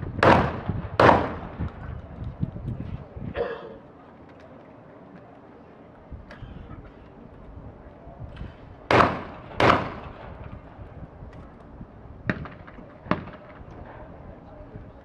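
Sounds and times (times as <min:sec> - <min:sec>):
shotgun shots: 0:00.2 - 0:01.7, 0:08.9 - 0:10.6, 0:12.3 - 0:13.6.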